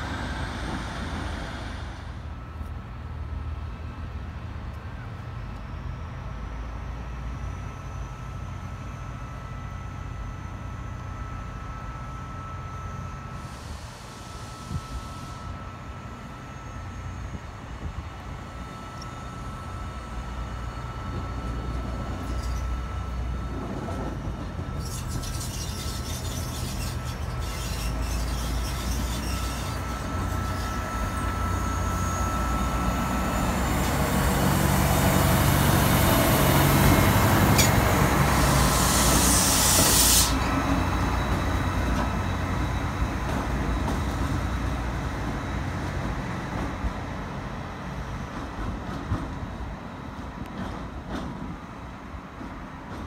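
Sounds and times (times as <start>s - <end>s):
locomotive humming past: 0.0s - 53.0s
loud hiss: 38.3s - 40.4s.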